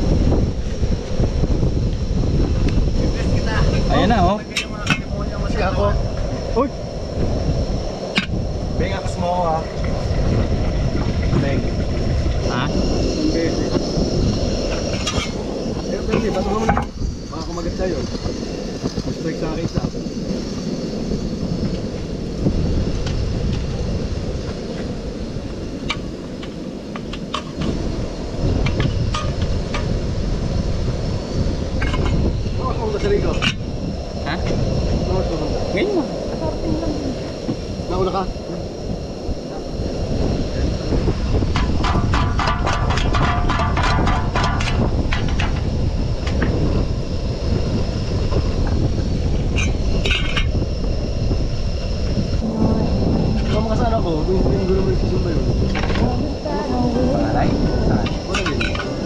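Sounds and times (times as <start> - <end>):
low rumble: 0.0 - 25.8, 51.4 - 59.0
wind buffeting microphone: 0.0 - 59.0.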